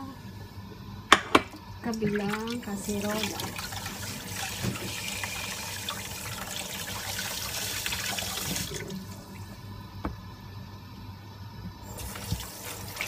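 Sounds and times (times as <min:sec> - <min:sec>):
tap water splashing: 0:03.2 - 0:05.0.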